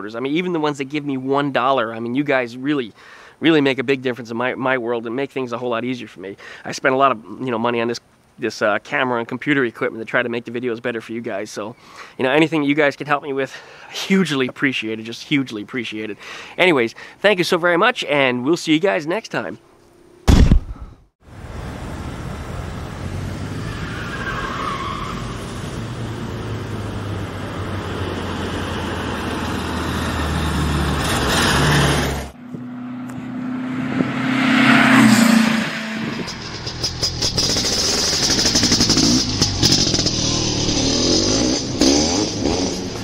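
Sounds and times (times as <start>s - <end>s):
car engine droning: 21.3s - 43.0s.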